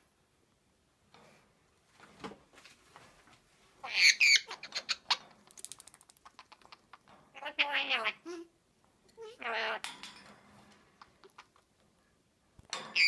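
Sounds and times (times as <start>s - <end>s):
parrot squawky chirps: 3.8s - 5.2s, 7.4s - 8.2s, 9.4s - 9.8s.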